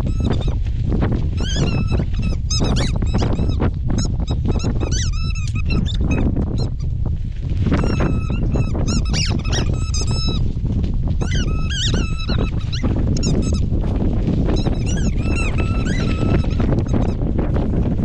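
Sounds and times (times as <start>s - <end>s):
wind rumble on microphone: 0.0s - 18.0s
dog whining: 4.5s - 6.2s, 11.2s - 13.5s, 14.8s - 17.1s.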